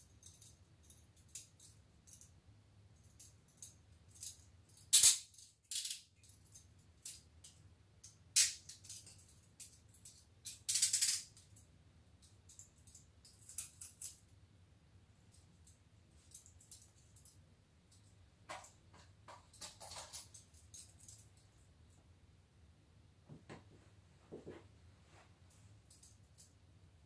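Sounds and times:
handcuffs rattling and ratcheting: 0.0 - 2.4, 3.0 - 14.3, 15.3 - 18.7, 19.3 - 21.4, 25.9 - 26.5
handcuff chain clicks and clinks: 8.4 - 11.6, 19.4 - 21.4.

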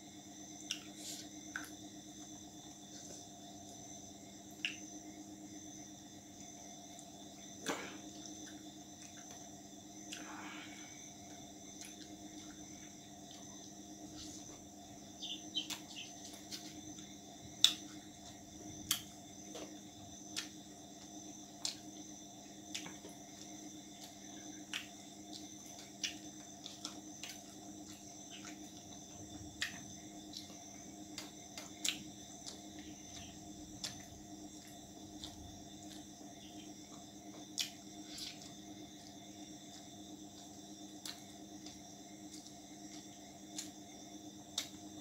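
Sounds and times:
steady high whine: 0.0 - 44.8.

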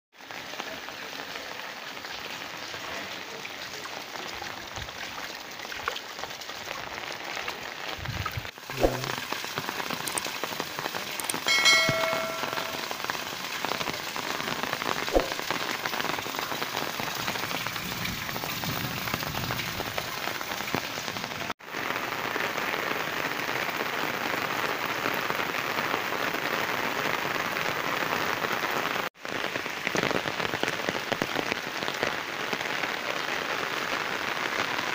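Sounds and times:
rain falling on puddles: 0.1 - 34.9
short ringing tone: 11.5 - 13.2.

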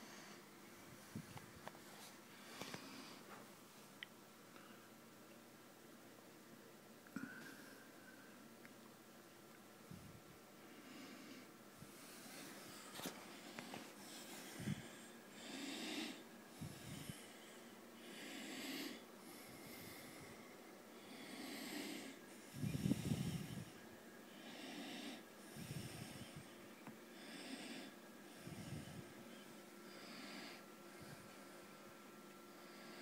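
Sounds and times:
quiet breathing: 0.0 - 5.3, 7.0 - 8.8, 9.8 - 33.0.

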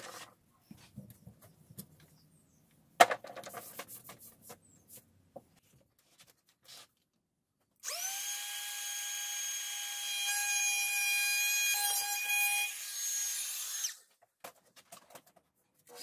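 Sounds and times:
router bit cutting wood: 7.8 - 14.0.

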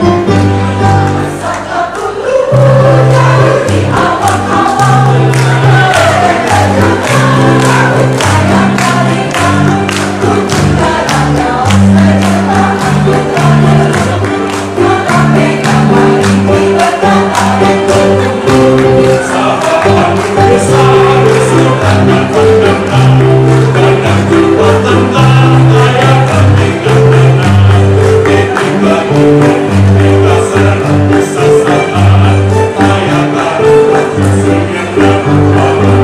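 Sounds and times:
electronic keyboard accompaniment: 0.0 - 36.0
mixed choir singing: 0.0 - 36.0.

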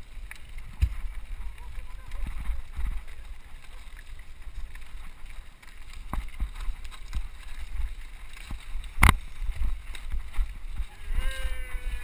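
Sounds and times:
bike rolling over gravel: 0.0 - 12.0
wind rumbling on microphone: 0.0 - 12.0.

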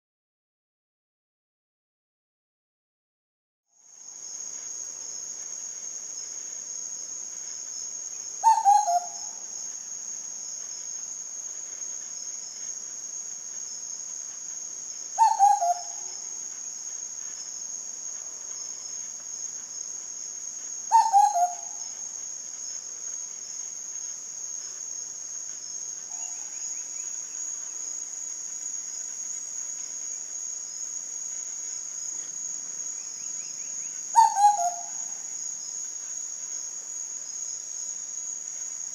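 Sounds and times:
cuckoo calling: 8.4 - 9.4, 15.2 - 16.2, 20.9 - 21.9, 26.1 - 26.7, 34.1 - 35.2.

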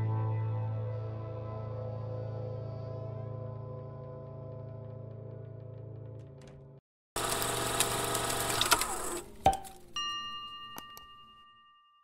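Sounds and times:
whirring rattling noise: 7.2 - 9.4
notification bell ding: 10.0 - 12.0.

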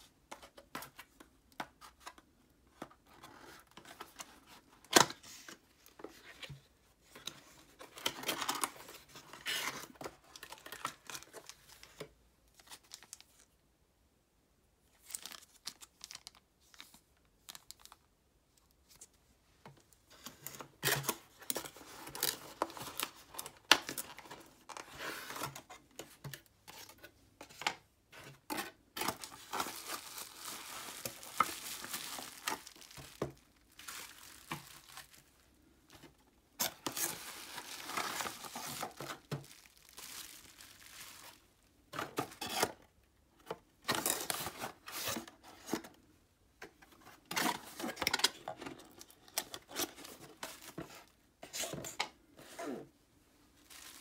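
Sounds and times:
plastic wrapping crinkling: 28.9 - 41.6, 53.6 - 54.0.

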